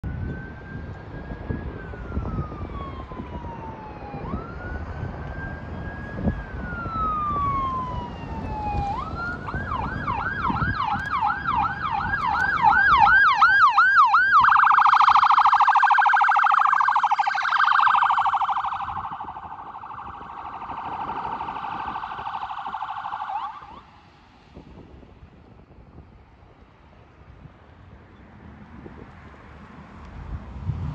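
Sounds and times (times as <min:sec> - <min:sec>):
ambulance siren: 0:00.0 - 0:24.0.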